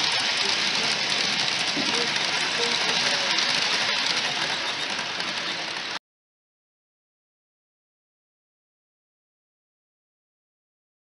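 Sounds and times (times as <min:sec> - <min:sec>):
model train wheels rattling on rails: 0:00.0 - 0:06.0.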